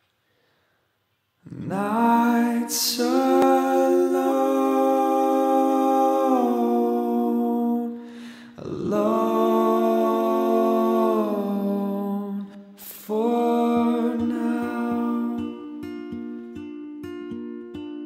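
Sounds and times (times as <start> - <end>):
short breath: 0.1 - 1.0, 8.0 - 8.6
person humming long notes: 1.5 - 16.2.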